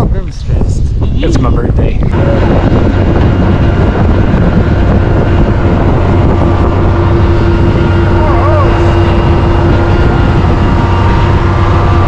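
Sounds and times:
steady whine: 0.0 - 12.0
diesel engine running: 2.1 - 12.0.

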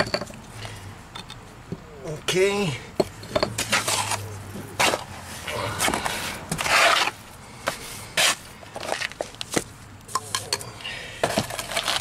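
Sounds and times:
trowel scraping cement on brick: 6.6 - 7.2.

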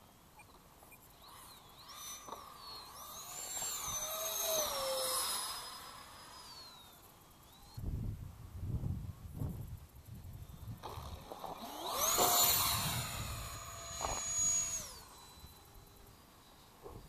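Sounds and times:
electric ducted fan whine: 0.0 - 17.0
wind rumbling on microphone: 7.6 - 15.0.

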